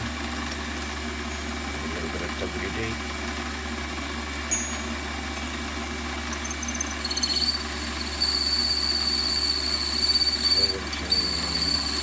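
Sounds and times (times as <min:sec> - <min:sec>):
drill squealing in metal: 0:06.6 - 0:12.0
lathe machine hum: 0:07.0 - 0:12.0.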